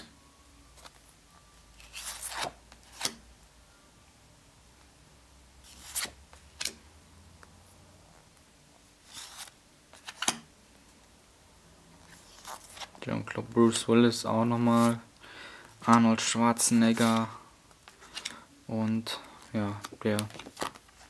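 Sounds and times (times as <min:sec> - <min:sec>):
postcards rubbing swishes: 0:05.6 - 0:06.7, 0:14.6 - 0:15.0.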